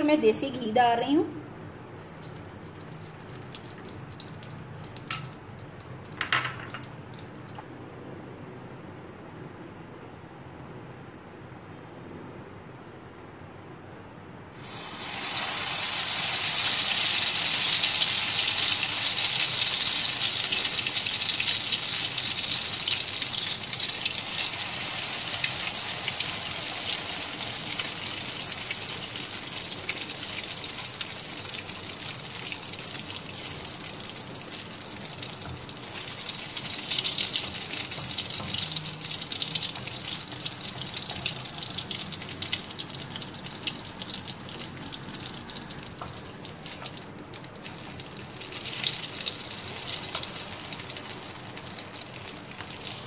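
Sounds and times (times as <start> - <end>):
bread sizzling in hot fat: 14.6 - 53.0.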